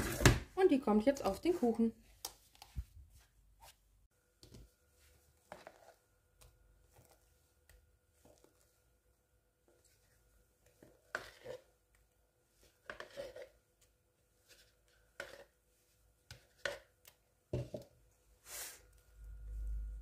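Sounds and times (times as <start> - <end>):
spatula scraping and tapping bowl: 5.5 - 8.6, 10.6 - 11.7, 12.6 - 13.9, 14.5 - 15.6, 16.3 - 17.9.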